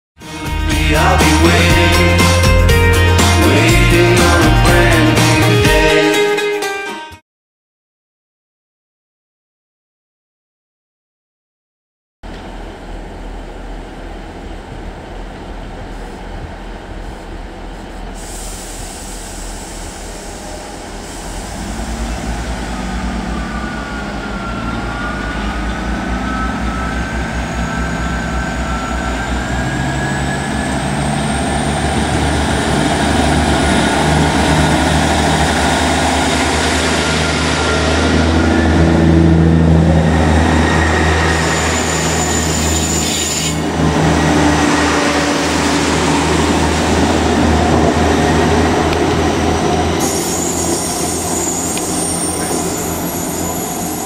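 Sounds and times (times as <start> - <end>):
diesel train engines accelerating: 0.2 - 6.4, 12.2 - 54.0
high whine rising in pitch: 19.4 - 54.0.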